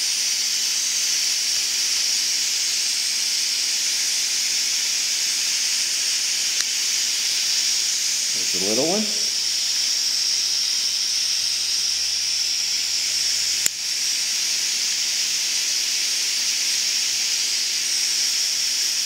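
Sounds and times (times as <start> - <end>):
high-pitched recording hiss: 0.0 - 19.0.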